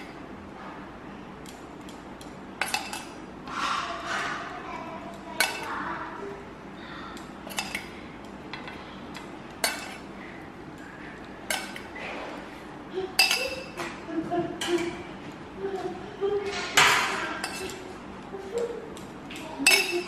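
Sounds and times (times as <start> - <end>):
spoon clinking against steel bowl: 7.4 - 8.0, 9.1 - 10.0, 13.2 - 13.9, 17.4 - 17.8, 19.6 - 20.0.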